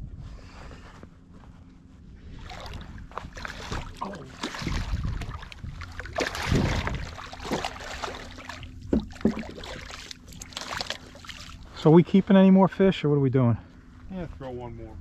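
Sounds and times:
fish thrashing and splashing: 2.4s - 11.7s
sharp knocks: 8.9s - 9.6s.

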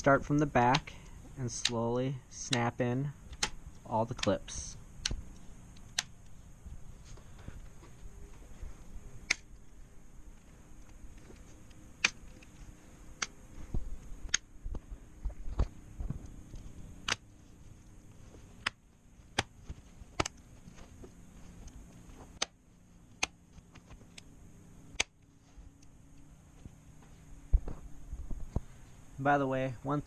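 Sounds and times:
plastic clips snapping: 3.3s - 4.4s, 5.0s - 6.3s, 9.2s - 9.6s, 12.0s - 13.4s, 17.0s - 17.3s, 20.1s - 20.4s, 22.3s - 24.3s.

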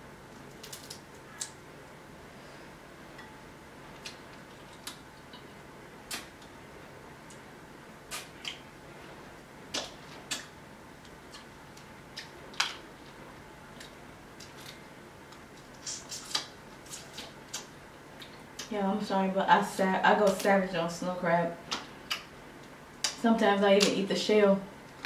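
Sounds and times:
faint room hum: 0.0s - 25.0s
crab shells cracking: 0.5s - 1.6s.

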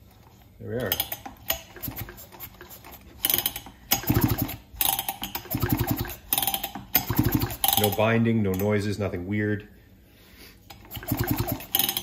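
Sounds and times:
chainsaw recoil starter ratcheting: 0.8s - 8.1s, 10.8s - 12.0s.

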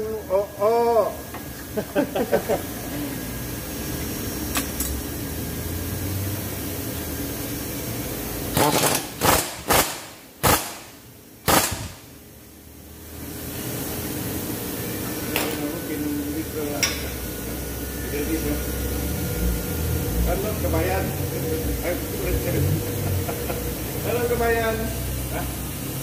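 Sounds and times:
workshop hum: 0.0s - 26.0s
pneumatic impact wrench bursts: 8.4s - 12.1s.

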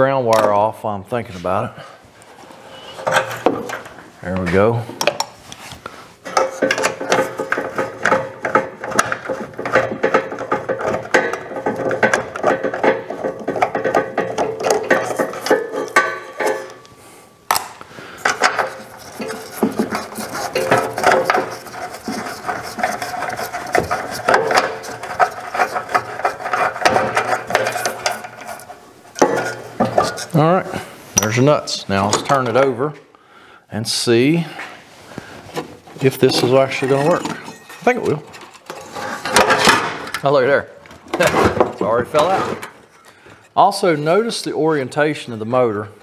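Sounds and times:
wrench clicking and scraping metal: 6.2s - 16.9s, 18.2s - 30.4s.

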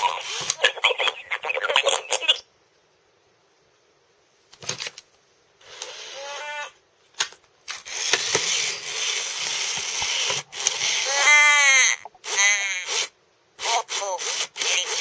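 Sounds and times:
high warbling toy voice: 0.0s - 2.5s, 11.0s - 15.0s
static hiss with clicks: 0.0s - 12.5s.

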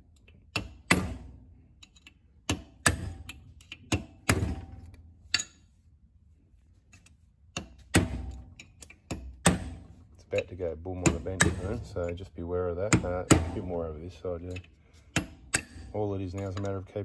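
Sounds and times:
hammer striking steel punch: 0.6s - 1.4s, 2.5s - 3.3s, 7.6s - 8.4s, 9.1s - 9.9s, 11.0s - 12.1s, 12.9s - 13.8s, 15.1s - 15.9s.

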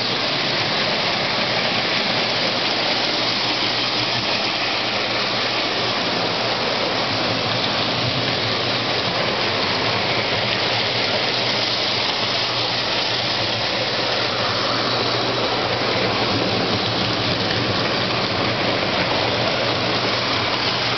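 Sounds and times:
low motor hum: 0.0s - 20.9s
toy train rolling rumble: 0.0s - 20.9s.

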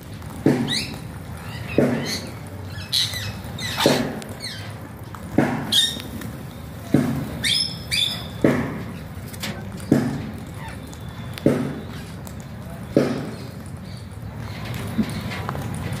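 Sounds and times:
parakeets squawking: 0.7s - 4.7s, 5.7s - 6.2s, 7.4s - 9.2s.

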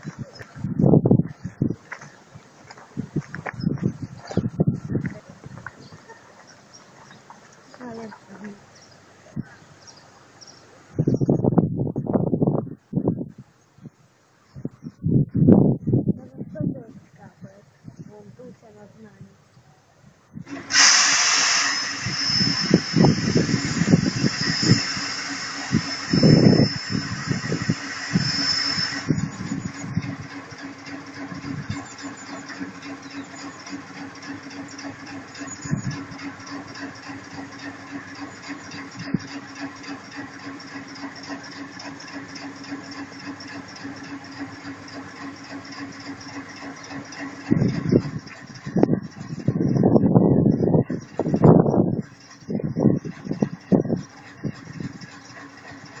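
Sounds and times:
electric locomotive whine: 0.0s - 9.4s, 20.4s - 56.0s
air release hiss: 20.5s - 29.8s.

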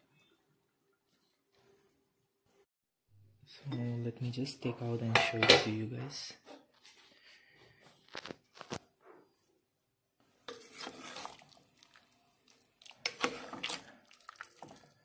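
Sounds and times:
metal ladle scraping a pot: 10.4s - 11.6s, 13.0s - 13.9s.

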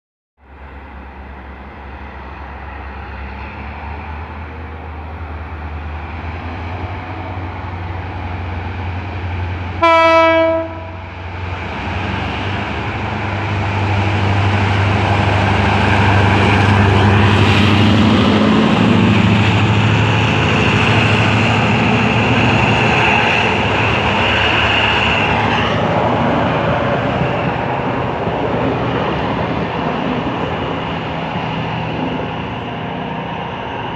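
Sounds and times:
diesel locomotive engine drone: 0.4s - 33.9s
train horn blast: 9.8s - 11.1s.

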